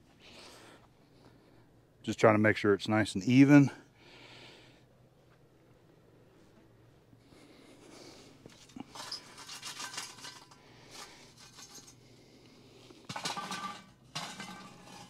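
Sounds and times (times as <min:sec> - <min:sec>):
charcoal clattering onto metal lid: 0:08.5 - 0:12.0, 0:13.1 - 0:15.0.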